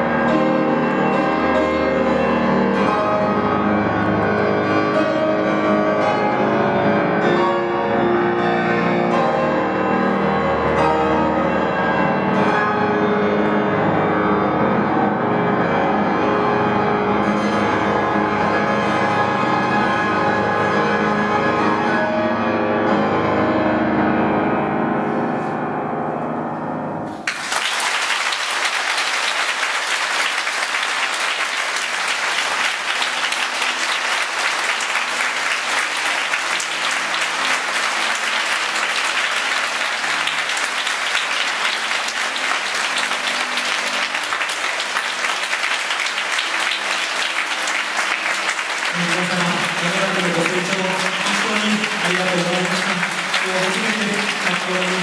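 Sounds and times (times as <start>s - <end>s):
piano notes ringing: 0.0s - 27.3s
audience applause: 27.2s - 55.0s.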